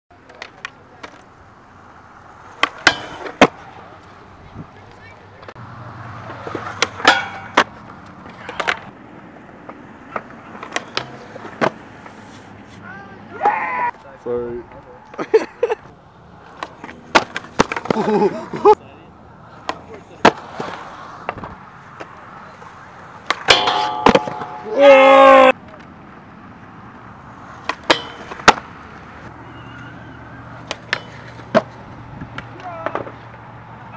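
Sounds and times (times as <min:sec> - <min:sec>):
skateboard clacking on ground: 0:00.1 - 0:01.4, 0:02.4 - 0:04.2, 0:06.2 - 0:09.0, 0:09.6 - 0:12.3, 0:16.4 - 0:18.8, 0:19.6 - 0:25.9, 0:27.6 - 0:29.0, 0:30.5 - 0:33.5
skateboard wheels rolling on concrete: 0:00.1 - 0:33.9.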